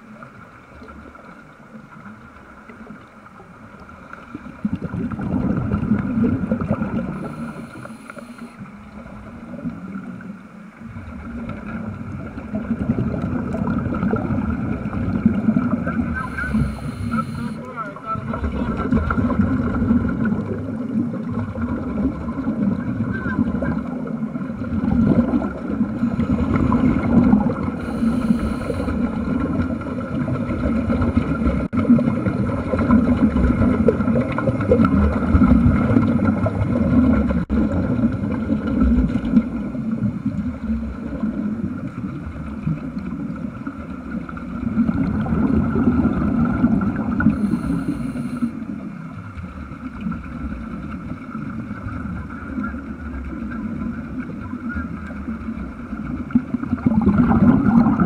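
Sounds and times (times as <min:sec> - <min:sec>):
underwater air bubbles gurgling: 0:00.0 - 0:58.0.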